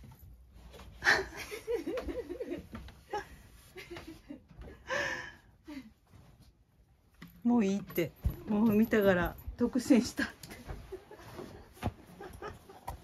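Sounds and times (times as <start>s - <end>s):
woman laughing softly: 1.0s - 6.1s.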